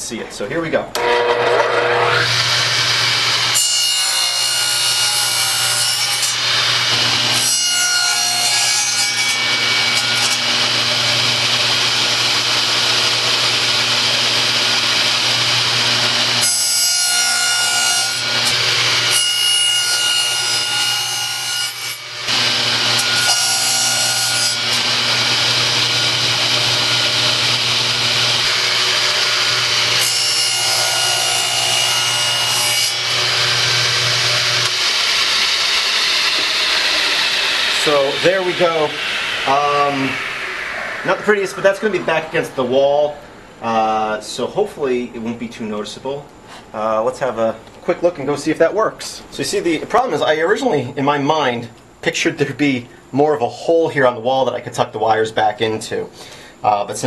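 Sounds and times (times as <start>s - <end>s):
saw motor humming: 0.9s - 42.8s
saw blade cutting wood: 1.0s - 42.5s.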